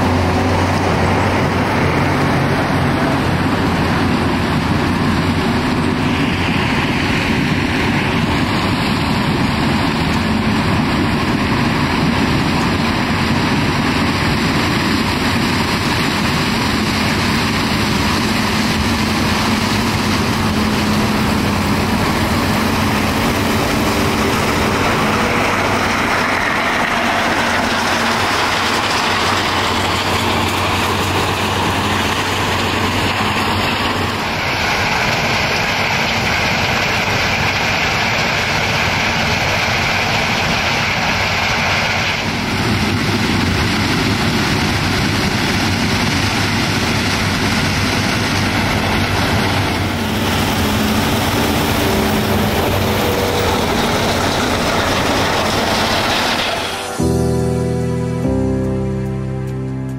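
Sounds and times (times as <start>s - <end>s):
combine harvester drone: 0.0s - 59.9s.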